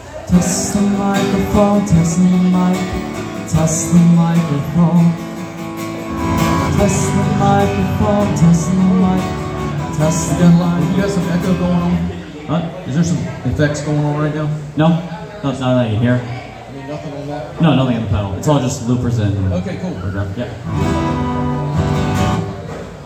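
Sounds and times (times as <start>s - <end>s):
guitar playing: 0.0s - 12.3s, 20.6s - 23.0s
person singing into a microphone: 0.3s - 5.4s, 6.3s - 12.2s.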